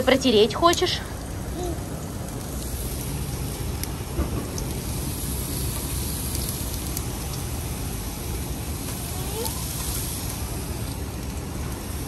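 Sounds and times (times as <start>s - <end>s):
vegetables sizzling on grill: 0.0s - 12.0s.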